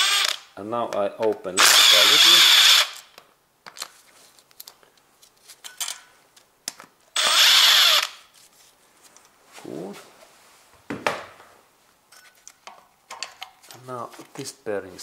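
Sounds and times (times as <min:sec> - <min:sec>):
power driver whine: 0:00.0 - 0:00.4, 0:07.2 - 0:08.2
tool and parts clicking: 0:12.1 - 0:13.8.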